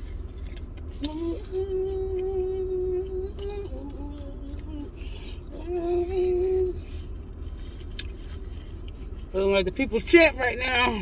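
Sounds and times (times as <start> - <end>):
low steady rumble: 0.0 - 11.0
woman humming: 1.0 - 4.9.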